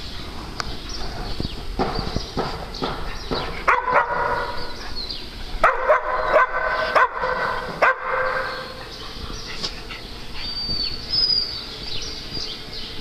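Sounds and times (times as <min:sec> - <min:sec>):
small dogs barking: 0:03.6 - 0:04.9, 0:05.6 - 0:11.1.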